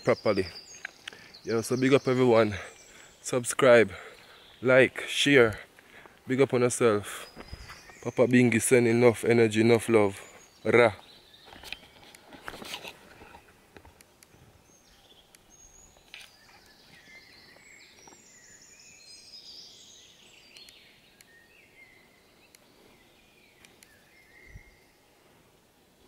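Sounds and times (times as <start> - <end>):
faint bird chirps and whistles: 7.1 - 8.3, 14.7 - 25.2
clicks and rustles: 11.4 - 14.4.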